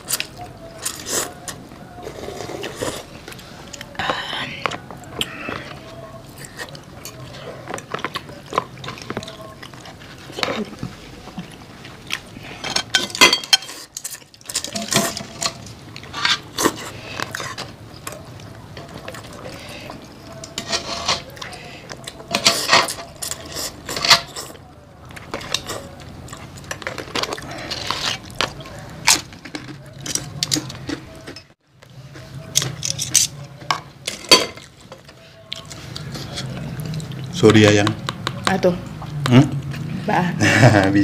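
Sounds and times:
chewing: 0.0s - 40.1s
utensils clinking against bowls: 12.6s - 24.6s, 32.5s - 39.8s
slurping noodle soup: 25.2s - 29.0s.

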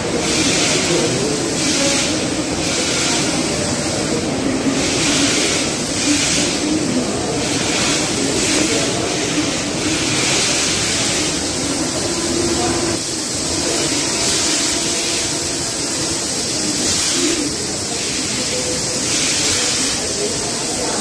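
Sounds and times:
production line machinery: 0.0s - 21.0s
short bursts of hiss: 0.0s - 21.0s.

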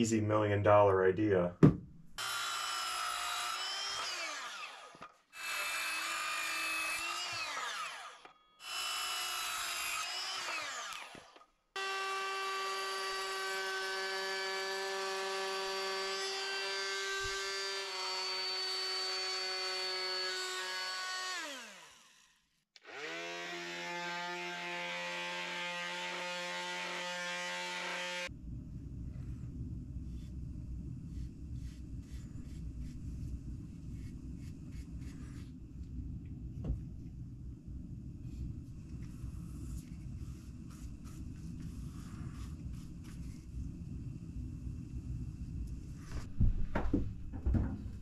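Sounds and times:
router motor whining cutting wood: 2.2s - 28.3s.

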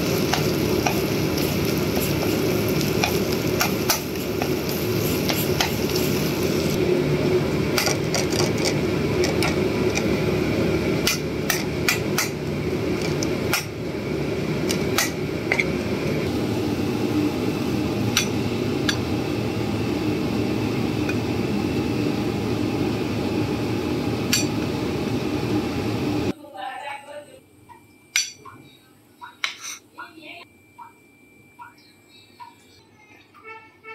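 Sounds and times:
chicken sizzling in oil: 0.0s - 8.1s.

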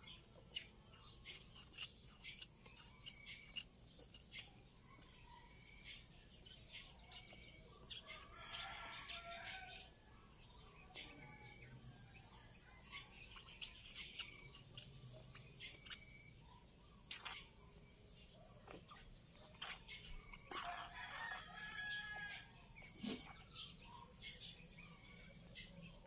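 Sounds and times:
small bird chirping: 0.0s - 26.0s
rooster crowing: 8.2s - 9.9s, 20.5s - 22.6s.

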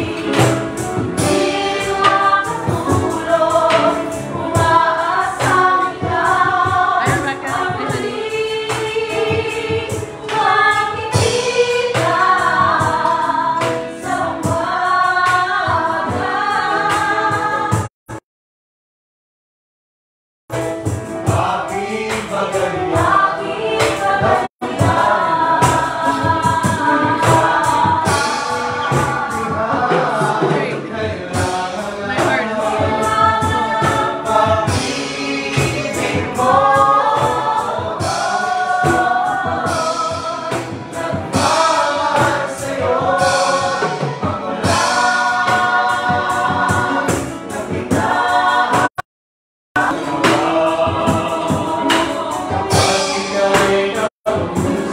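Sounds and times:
group singing in chorus: 0.0s - 17.9s, 21.2s - 49.0s, 49.8s - 54.9s.

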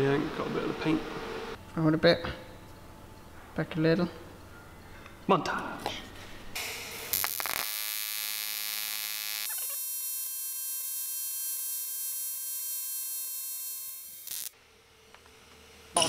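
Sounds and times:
welding arc buzzing: 6.6s - 14.6s.

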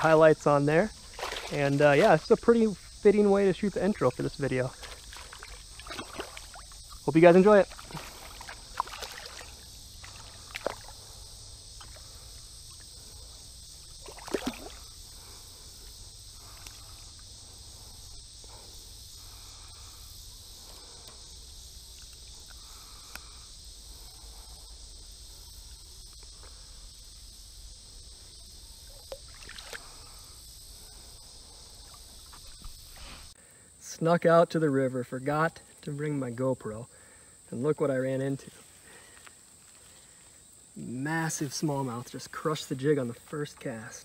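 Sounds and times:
river water sloshing: 0.0s - 18.1s, 29.0s - 30.2s
steady high hiss: 0.0s - 44.0s
fish splashing: 1.0s - 2.0s, 4.7s - 11.0s, 13.8s - 15.0s, 29.1s - 30.0s.

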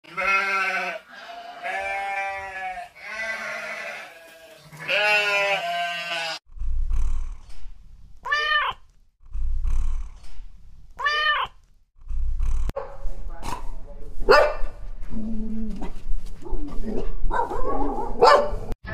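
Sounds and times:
sheep bleating: 0.0s - 6.4s
low rumbling noise: 6.5s - 8.2s, 9.0s - 11.0s, 11.9s - 16.4s
cat meowing: 8.2s - 8.8s, 11.0s - 11.6s.

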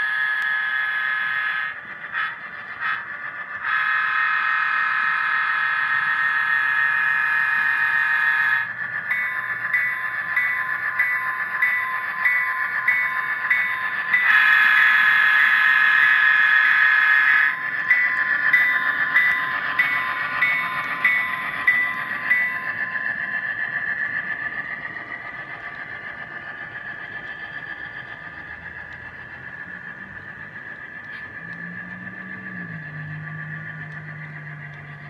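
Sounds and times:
freight cars rolling on track: 0.0s - 35.0s
locomotive horn blast: 3.7s - 5.4s
locomotive bell ringing: 5.9s - 27.3s.

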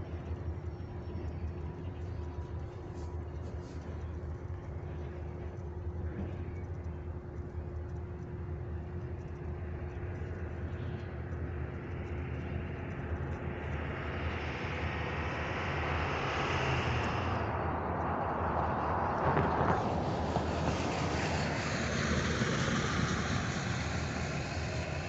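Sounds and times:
diesel locomotive engine rumbling: 0.0s - 25.0s
rising hiss: 13.5s - 25.0s.

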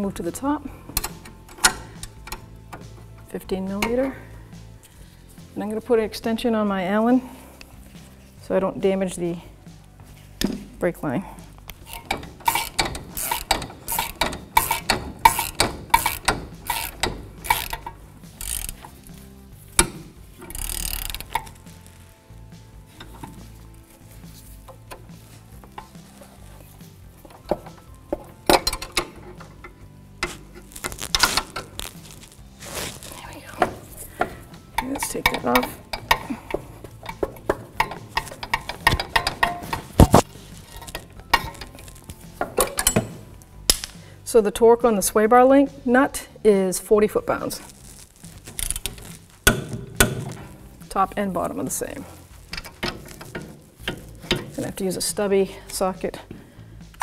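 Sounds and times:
hand ratchet clicking: 0.8s - 3.1s, 11.6s - 22.0s, 22.9s - 23.7s, 24.3s - 32.4s, 33.1s - 44.0s, 47.8s - 50.9s, 52.0s - 55.0s
metal hand tools clicking: 11.7s - 19.1s, 19.8s - 21.7s, 33.6s - 43.1s
quick ratchet whirr: 11.8s - 18.9s, 19.8s - 21.5s.

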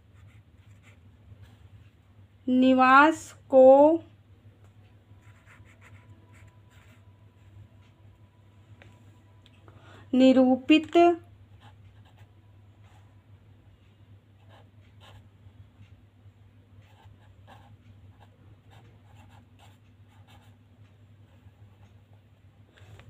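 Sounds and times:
low steady hum: 0.0s - 23.0s
marker pen scratching on paper: 0.2s - 1.6s, 5.2s - 7.1s, 11.6s - 12.3s, 14.4s - 15.2s, 16.9s - 20.6s.

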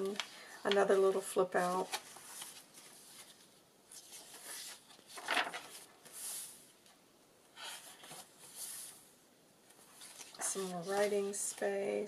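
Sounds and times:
paper pages rustling: 0.0s - 6.7s, 7.6s - 11.8s.

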